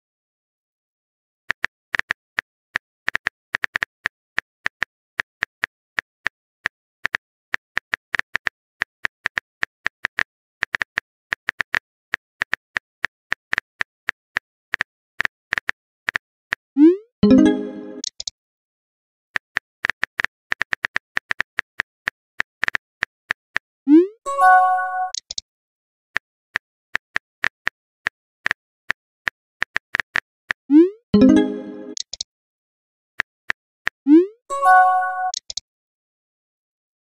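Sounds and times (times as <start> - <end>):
keyboard tap clicks: 17.4 - 18.3.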